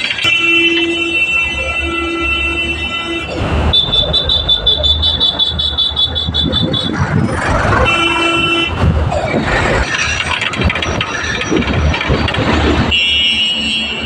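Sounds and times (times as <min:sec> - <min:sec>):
road traffic engines: 0:00.0 - 0:14.0
vehicle horn: 0:00.2 - 0:07.0, 0:07.8 - 0:08.8, 0:12.8 - 0:14.0.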